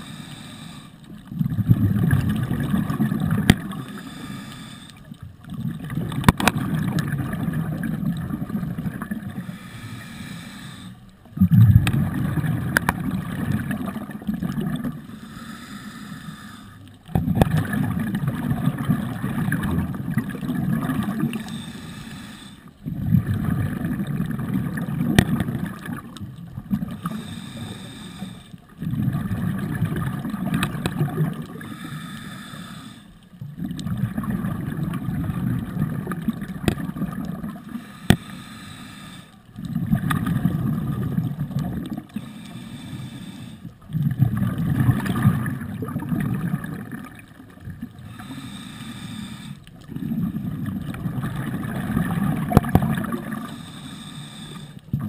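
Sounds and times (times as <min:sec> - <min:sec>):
regulator inhalations: 0:00.0 - 0:01.0, 0:03.8 - 0:05.1, 0:09.4 - 0:11.1, 0:15.0 - 0:16.8, 0:21.4 - 0:22.7, 0:27.0 - 0:28.6, 0:31.6 - 0:33.2, 0:37.7 - 0:39.4, 0:42.2 - 0:43.7, 0:48.1 - 0:49.8, 0:53.4 - 0:54.9
bubbling exhaled air underwater: 0:01.1 - 0:04.4, 0:05.0 - 0:22.1, 0:22.7 - 0:38.4, 0:39.0 - 0:55.0.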